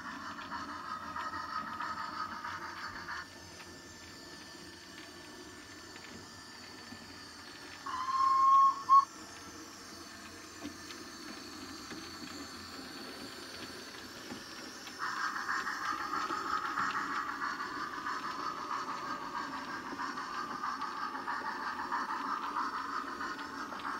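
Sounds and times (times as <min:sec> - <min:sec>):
model trains rumbling on track: 0:00.0 - 0:23.9
steam hiss: 0:00.0 - 0:23.9
model train steam whistle: 0:07.8 - 0:09.1.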